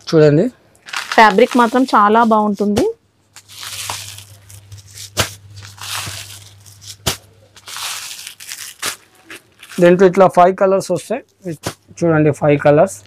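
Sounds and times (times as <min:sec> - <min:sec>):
low steady hum: 0:00.0 - 0:13.0
rustling fabric: 0:00.9 - 0:02.7, 0:03.4 - 0:10.0.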